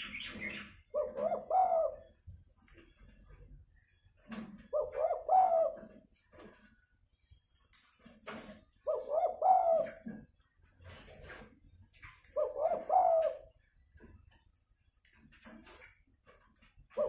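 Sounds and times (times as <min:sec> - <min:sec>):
dove cooing: 0:00.0 - 0:02.2, 0:04.6 - 0:06.1, 0:08.8 - 0:10.2, 0:12.3 - 0:13.6.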